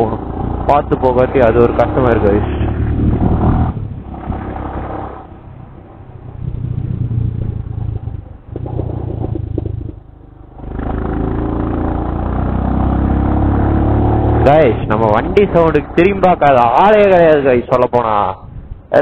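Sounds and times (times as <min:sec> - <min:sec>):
motorcycle engine and exhaust: 0:00.0 - 0:17.7.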